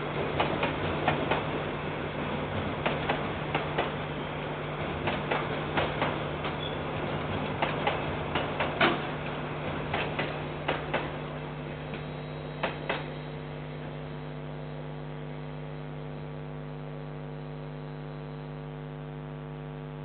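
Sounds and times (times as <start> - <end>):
train wheels clacking over rail joints: 0.0 - 11.3, 11.9 - 13.2
electrical hum and hiss: 7.8 - 20.0.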